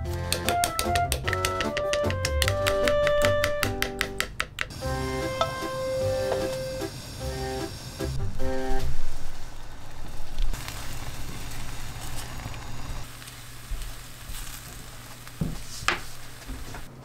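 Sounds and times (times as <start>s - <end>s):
eggs sizzling in a frying pan: 9.1s - 16.9s.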